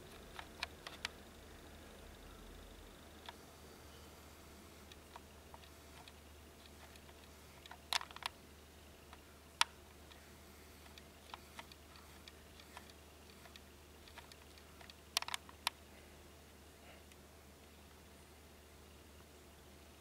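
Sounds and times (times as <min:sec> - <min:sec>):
sharp clicks and ticks: 0:00.0 - 0:01.2, 0:04.8 - 0:08.4, 0:09.1 - 0:10.2, 0:10.8 - 0:15.8
faint low hum: 0:00.0 - 0:20.0.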